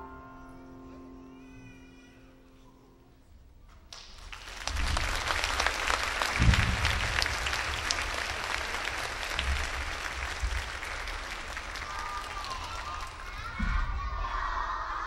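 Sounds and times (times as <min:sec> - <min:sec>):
audience applauding: 0:03.9 - 0:13.6
low thump: 0:06.4 - 0:07.2.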